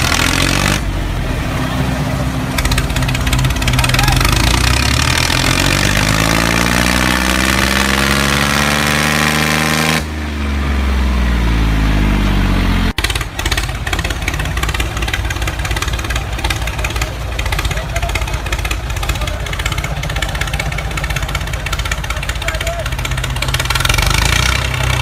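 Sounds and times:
toy tractor engine revving: 0:00.0 - 0:00.8, 0:02.4 - 0:09.3, 0:13.0 - 0:25.0
rough rattling engine running: 0:00.0 - 0:25.0.

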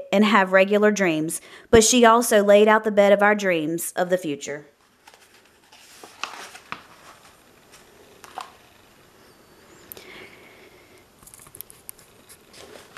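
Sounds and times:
book pages rustling: 0:04.8 - 0:08.9, 0:11.2 - 0:12.9.

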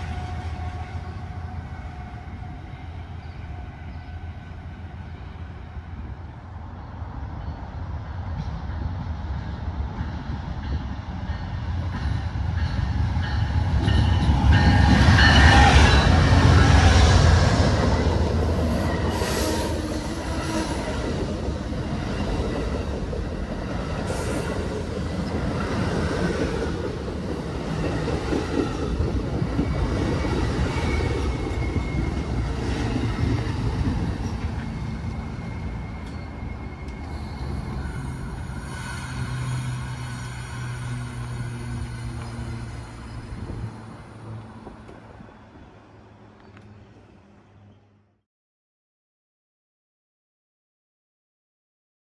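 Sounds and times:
train wheels on rails: 0:08.2 - 0:45.7.

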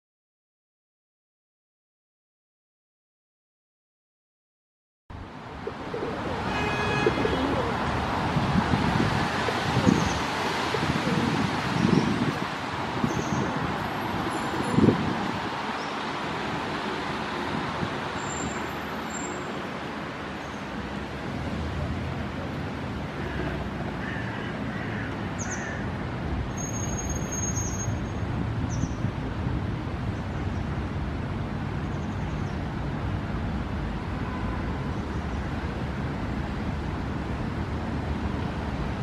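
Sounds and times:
low traffic rumble: 0:05.1 - 0:39.0.

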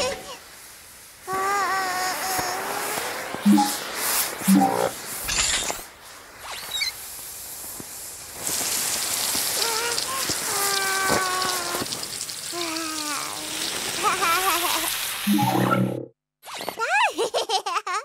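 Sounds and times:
shower water spraying: 0:00.0 - 0:15.8.

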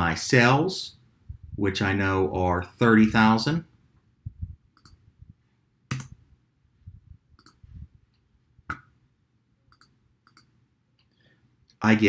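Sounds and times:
mouse and keyboard clicks: 0:05.9 - 0:06.2.

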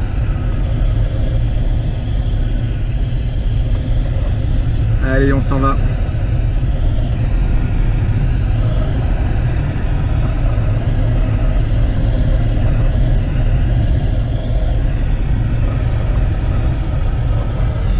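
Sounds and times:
airflow rumble in glider cockpit: 0:00.0 - 0:17.9.

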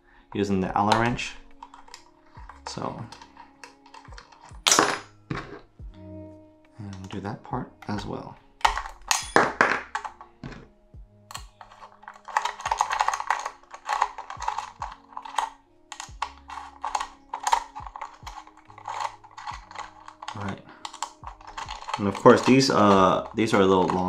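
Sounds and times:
allen key metal clicks: 0:11.3 - 0:24.0.

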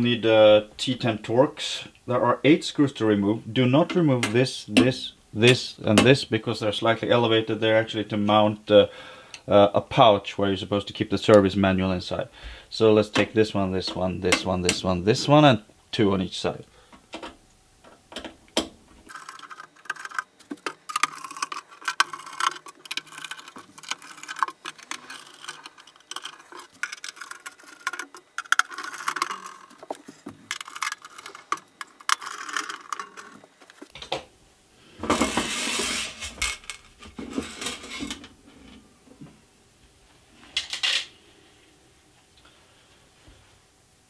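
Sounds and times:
screws scraping on metal cover: 0:19.1 - 0:33.9, 0:35.2 - 0:38.2.

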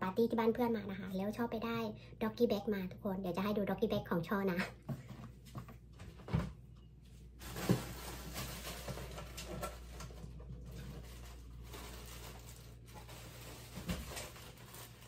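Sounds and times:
rummaging: 0:07.4 - 0:15.0.

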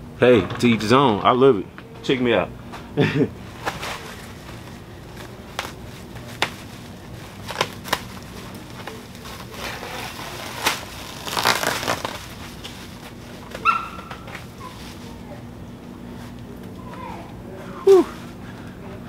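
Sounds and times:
plastic crinkling: 0:03.6 - 0:15.2
short high-pitched cry: 0:17.9 - 0:18.2.

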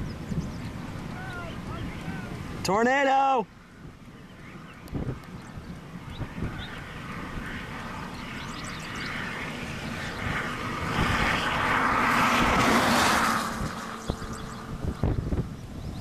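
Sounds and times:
low wind rumble: 0:00.0 - 0:16.0
vehicle passing on road: 0:00.0 - 0:16.0.

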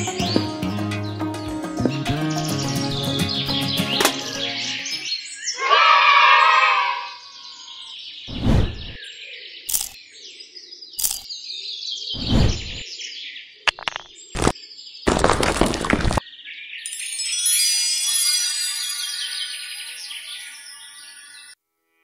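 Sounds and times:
music track: 0:00.0 - 0:05.0
birds chirping and tweeting: 0:00.0 - 0:17.0, 0:19.0 - 0:21.6.

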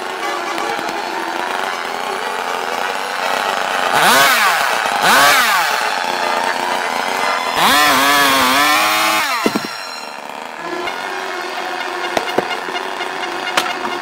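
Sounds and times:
chainsaw clicks: 0:00.0 - 0:14.0
chainsaw motor pull-starting: 0:00.0 - 0:14.0
chainsaw running: 0:00.0 - 0:14.0.

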